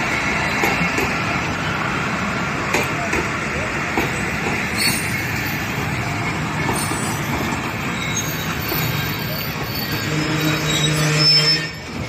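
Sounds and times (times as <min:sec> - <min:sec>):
train wheels rumbling on rails: 0:00.0 - 0:12.0
high wheel squeals: 0:04.1 - 0:12.0.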